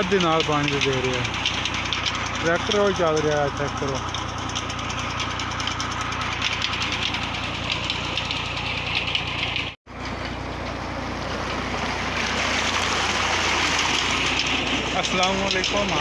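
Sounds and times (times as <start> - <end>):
water rushing through channel: 0.0 - 4.7, 10.7 - 16.0
tractor diesel engine running: 0.0 - 16.0.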